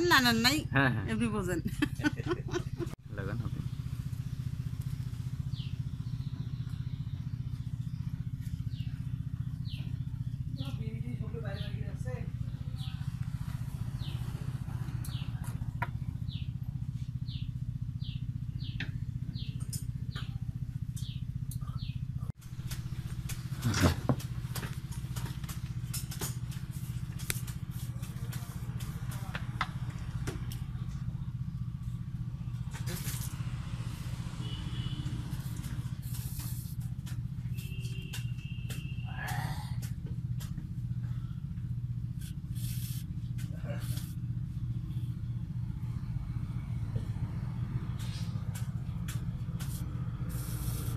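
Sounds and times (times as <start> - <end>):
engine humming: 0.0 - 50.9.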